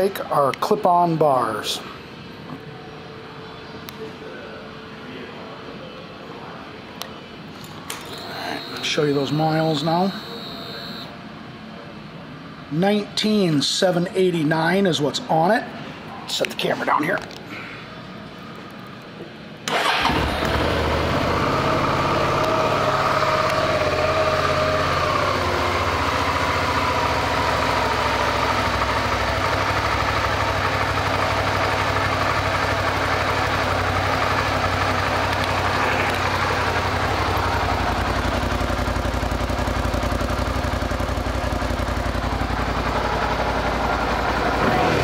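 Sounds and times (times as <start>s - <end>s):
motorcycle engine starting and idling: 19.6s - 45.0s.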